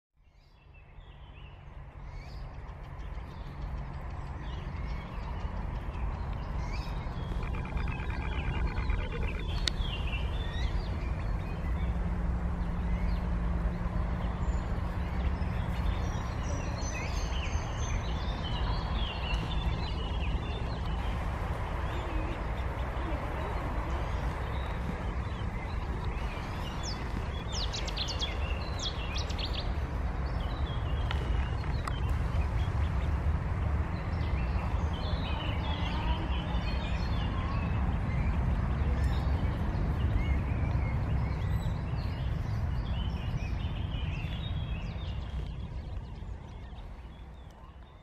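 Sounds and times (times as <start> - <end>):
wind rumble on microphone: 0.2 - 48.0
ducklings peeping: 2.4 - 11.8.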